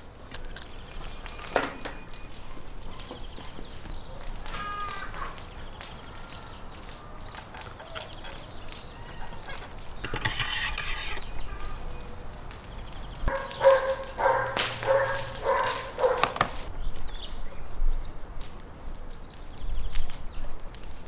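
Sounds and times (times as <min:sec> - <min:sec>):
rustling: 0:00.4 - 0:16.7
dog barking: 0:13.3 - 0:16.5.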